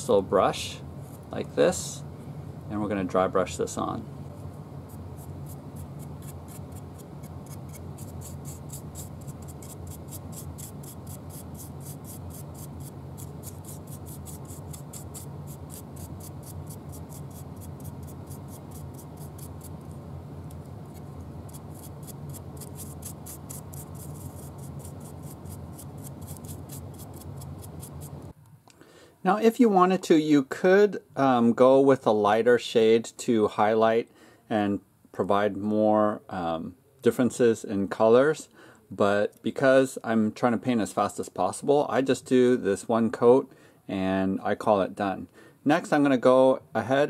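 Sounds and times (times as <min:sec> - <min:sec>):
steady low hum: 0:00.0 - 0:29.7
brush scrubbing on plastic: 0:20.9 - 0:28.2.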